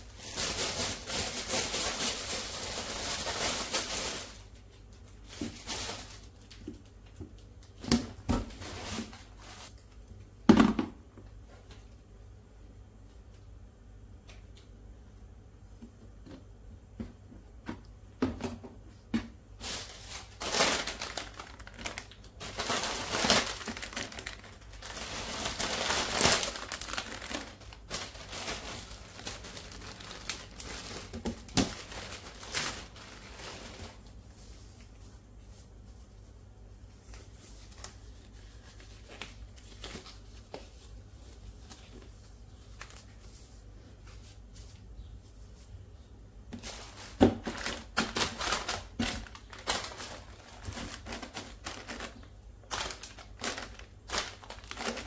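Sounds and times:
plastic bag crinkling: 0.0s - 6.6s, 19.6s - 35.0s, 46.6s - 55.0s.

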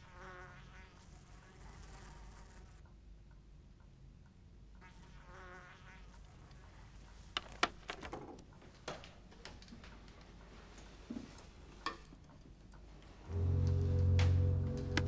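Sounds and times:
brief buzzing tone: 13.3s - 15.0s.

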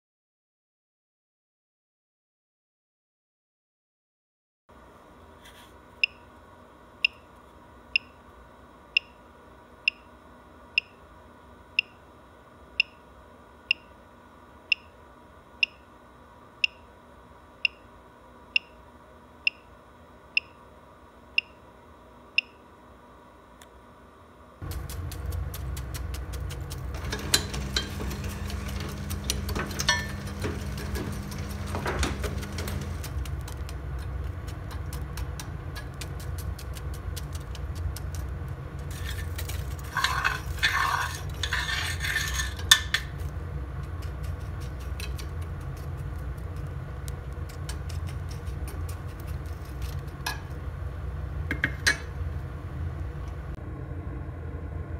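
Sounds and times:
boiler burner rumbling: 24.5s - 54.9s.

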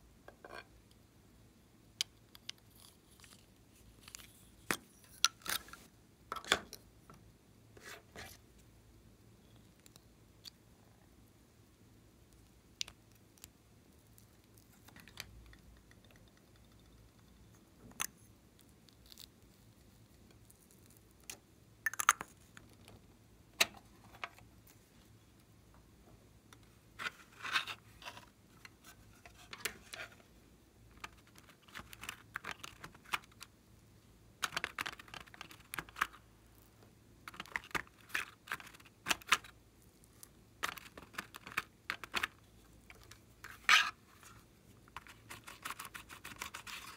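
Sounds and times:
plastic spatula scraping: 42.9s - 46.9s.

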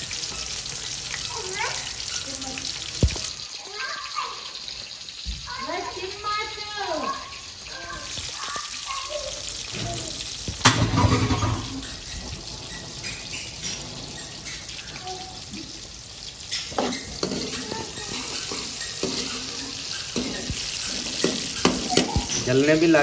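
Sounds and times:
onions sizzling in a pan: 0.0s - 23.0s
ladle clinking and scraping pan: 10.6s - 15.0s, 16.4s - 22.6s.

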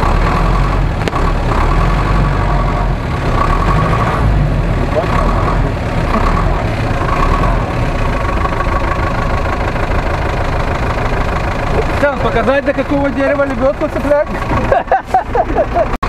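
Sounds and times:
truck engine rumbling: 0.0s - 16.0s.

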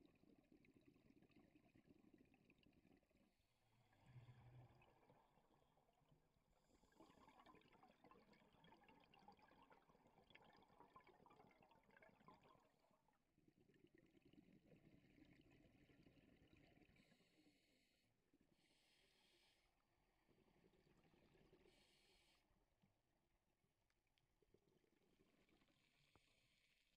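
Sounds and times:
faint underwater hiss: 17.0s - 18.0s, 21.7s - 22.4s.

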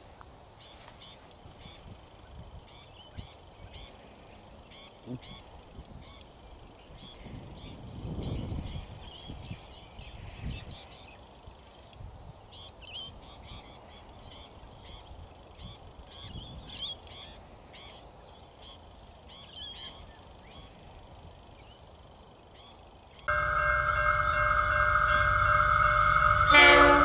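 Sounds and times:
faint low rumble: 23.3s - 27.0s.

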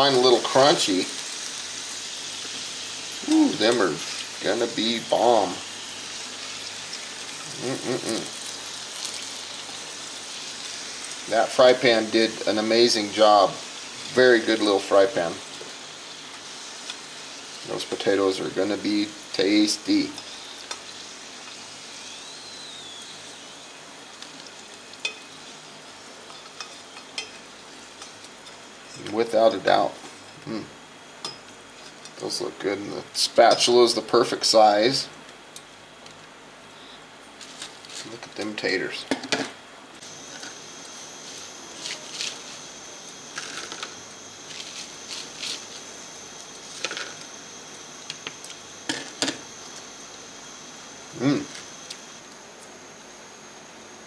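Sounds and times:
oil sizzling in a pan: 0.0s - 35.9s, 40.0s - 54.0s.

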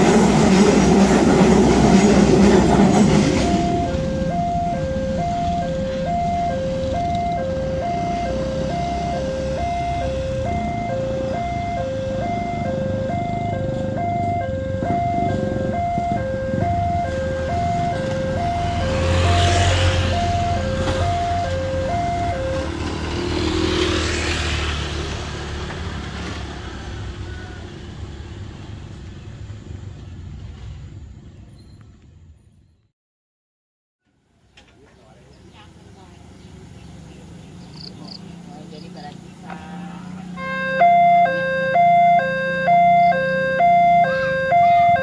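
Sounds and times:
motorcycles passing: 0.0s - 30.6s, 34.8s - 45.0s
level crossing alarm: 1.2s - 23.4s, 40.3s - 45.0s.

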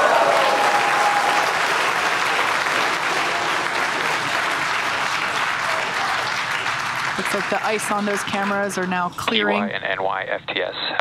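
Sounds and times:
crowd applauding and cheering: 0.0s - 9.1s.

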